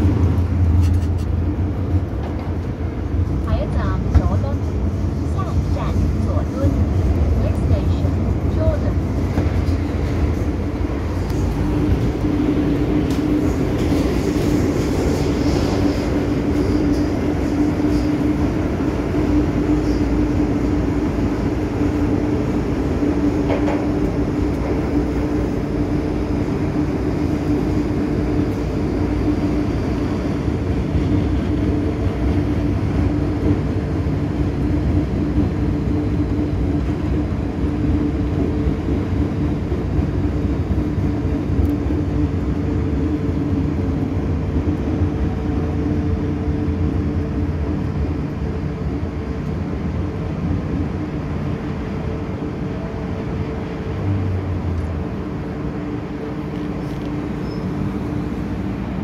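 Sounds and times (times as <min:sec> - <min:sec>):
train rumble: 0:00.0 - 0:59.0.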